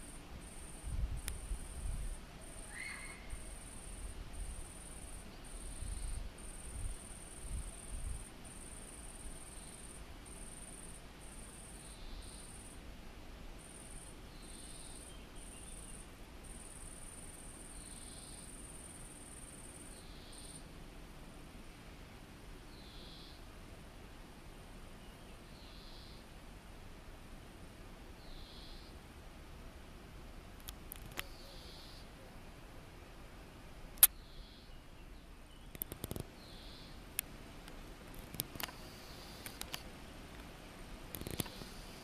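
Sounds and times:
insect trilling: 0:02.5 - 0:07.9, 0:41.1 - 0:42.0
faint short chirps: 0:02.6 - 0:03.4.

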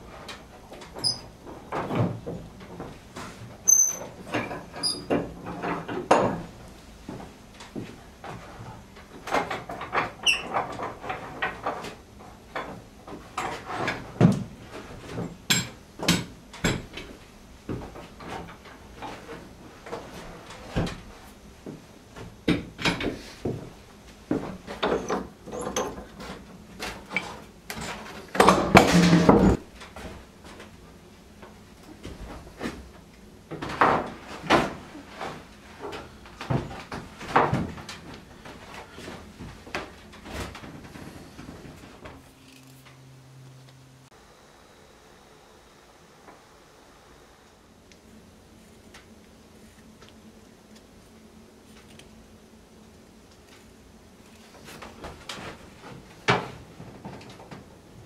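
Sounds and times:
wooden boards and clamps knocking: 0:28.4 - 0:29.6.

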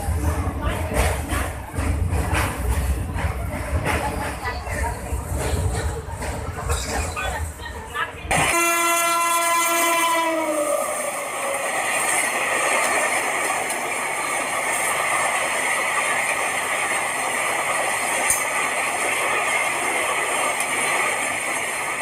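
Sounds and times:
passenger train rushing along track: 0:00.0 - 0:22.0
train horn blowing: 0:08.3 - 0:11.2.

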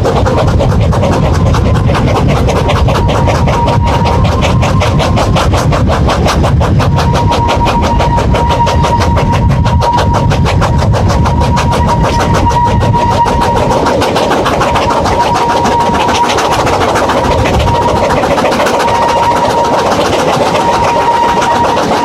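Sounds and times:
high wheel squeal: 0:00.0 - 0:22.0
steam locomotive exhaust chuffs: 0:00.0 - 0:22.0
train running rumble: 0:00.0 - 0:22.0.

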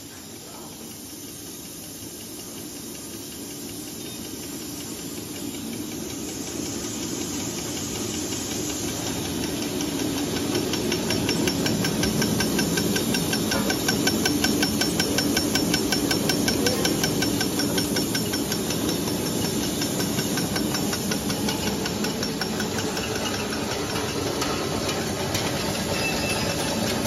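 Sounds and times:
machine hiss and hum: 0:00.0 - 0:27.0
rapid even ticking of cutter: 0:06.0 - 0:27.0.

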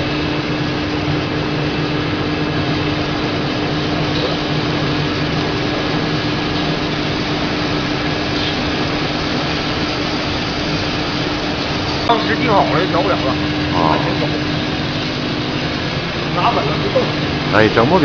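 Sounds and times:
welding machine droning: 0:00.0 - 0:18.0.

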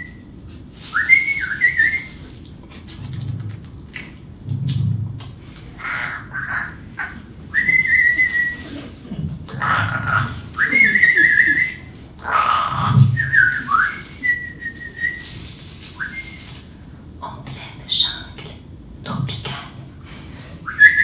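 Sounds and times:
person whistling: 0:00.9 - 0:02.2, 0:07.5 - 0:08.7, 0:10.6 - 0:11.9, 0:13.0 - 0:15.3, 0:16.0 - 0:16.5, 0:20.7 - 0:21.0.

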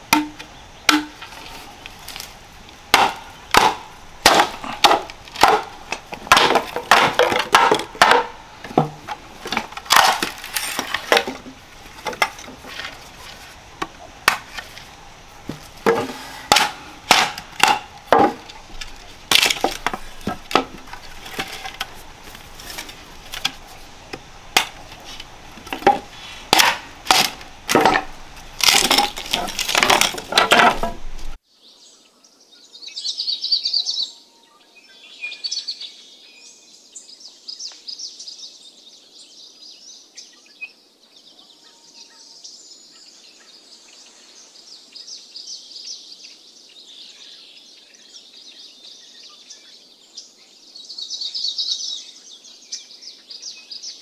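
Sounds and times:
wood chopping and cracking: 0:00.1 - 0:13.0, 0:13.8 - 0:14.8, 0:15.5 - 0:31.4.

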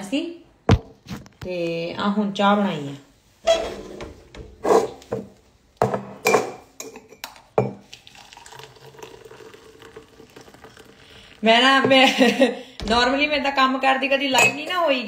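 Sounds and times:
mugs and saucepan clinking: 0:05.8 - 0:11.0, 0:14.3 - 0:15.0
tea pouring into a mug: 0:07.8 - 0:11.5.

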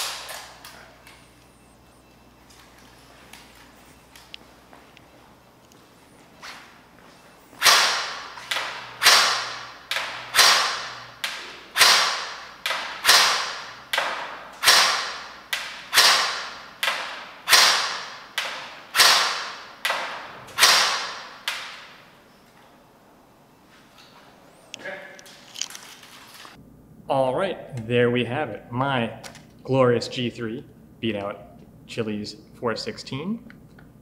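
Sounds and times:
airsoft gun shots: 0:07.6 - 0:22.0.

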